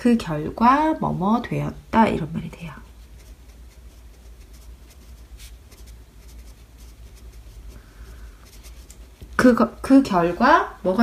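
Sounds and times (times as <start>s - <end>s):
low steady hum: 0.0s - 11.0s
pen scratching on paper: 2.9s - 9.2s.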